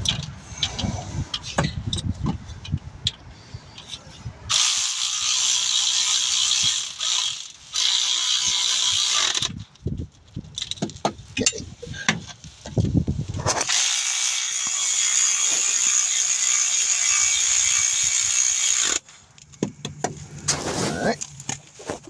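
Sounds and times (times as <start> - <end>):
cordless electric ratchet running: 4.5 - 9.6, 13.7 - 19.0.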